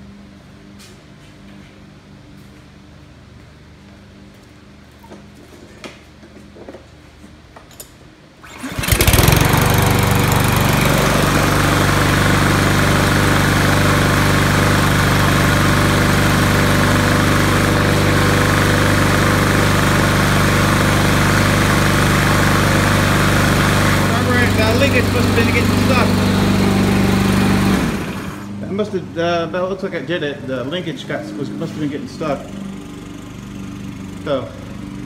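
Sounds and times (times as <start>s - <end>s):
lawn mower engine running: 8.4s - 28.8s, 32.2s - 35.0s.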